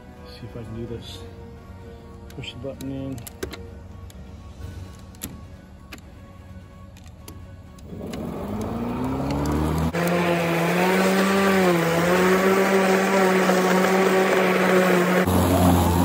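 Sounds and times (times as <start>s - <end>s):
electric lawn mower motor whining: 7.8s - 16.0s.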